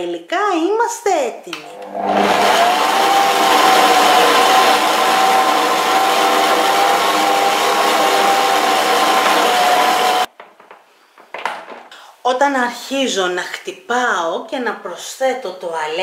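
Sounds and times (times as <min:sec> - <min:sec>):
stand mixer whisk beating dough: 0:02.0 - 0:10.3.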